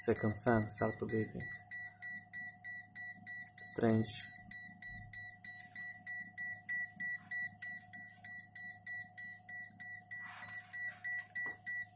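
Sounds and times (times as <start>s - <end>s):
rapid high-pitched buzzer beeps: 0.0s - 11.9s
steady low hum: 0.0s - 11.9s.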